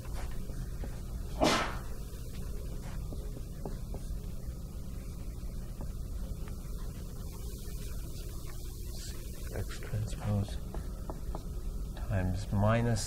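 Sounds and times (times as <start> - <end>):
low hum of room noise: 0.0 - 13.0.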